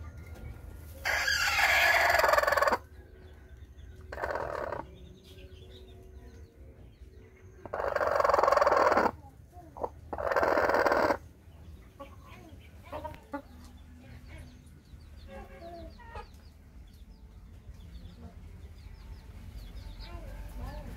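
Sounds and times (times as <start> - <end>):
hen clucking softly: 1.0 - 2.8, 4.1 - 4.9, 7.6 - 9.2, 9.8 - 11.2.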